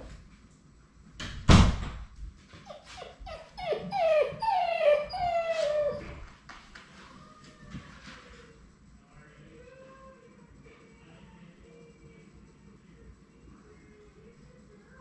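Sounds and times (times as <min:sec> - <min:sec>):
puppy whining: 0:02.6 - 0:06.4.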